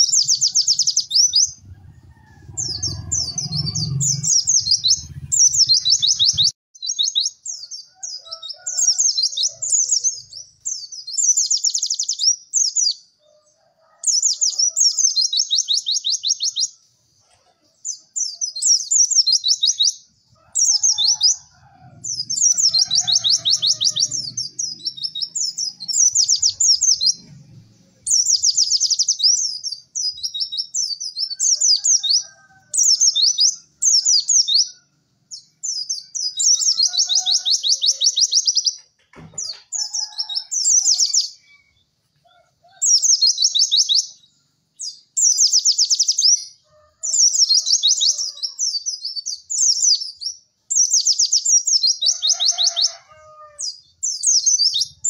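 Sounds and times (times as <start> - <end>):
bird twittering trills: 0.0 - 13.1, 17.8 - 27.3, 27.9 - 41.9.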